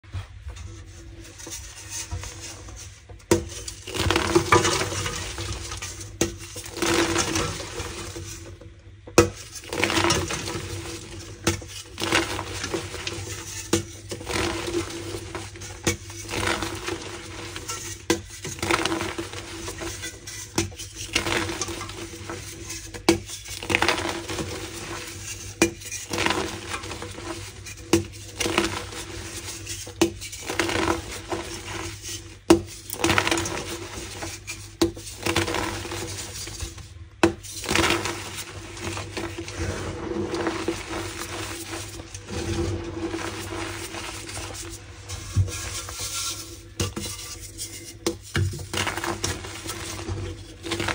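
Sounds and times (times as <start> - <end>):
chalk blocks crunching: 48.1 - 50.9.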